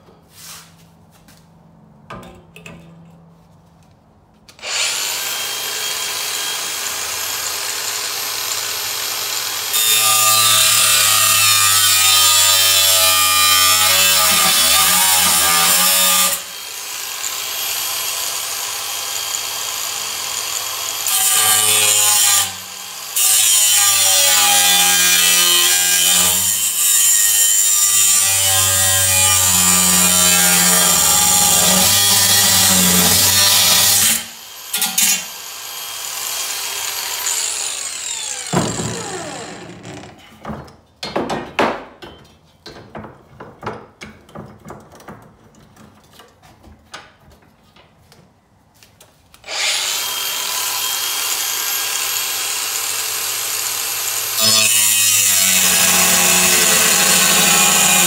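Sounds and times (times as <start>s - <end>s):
grinder wheel grinding steel: 28.2s - 40.3s
angle grinder whining: 30.2s - 40.3s, 49.4s - 53.0s.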